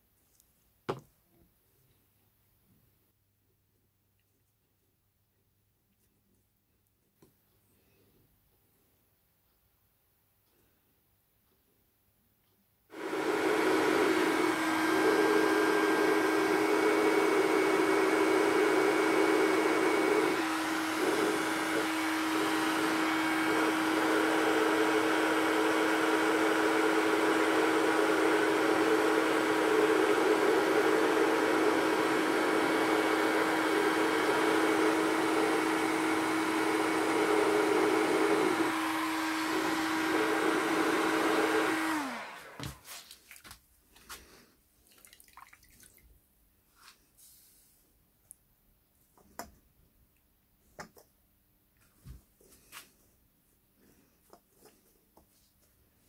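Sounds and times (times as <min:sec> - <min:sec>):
hot-air gun running: 0:12.9 - 0:42.8.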